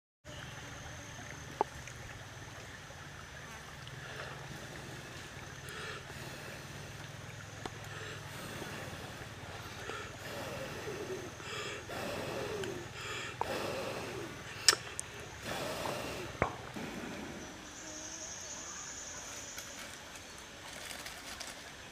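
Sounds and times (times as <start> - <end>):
steady low hum: 0.3 - 19.5
running water: 0.3 - 21.9
short breathy puffs: 7.9 - 17.6.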